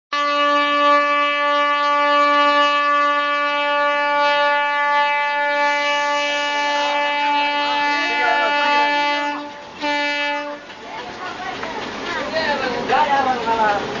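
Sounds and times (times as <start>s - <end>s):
locomotive air horn blast: 0.1s - 10.6s.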